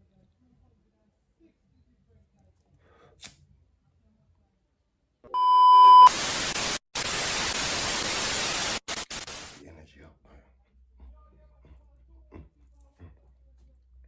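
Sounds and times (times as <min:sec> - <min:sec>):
high test-card beep: 0:05.4 - 0:06.2
tv static hiss: 0:05.9 - 0:09.6.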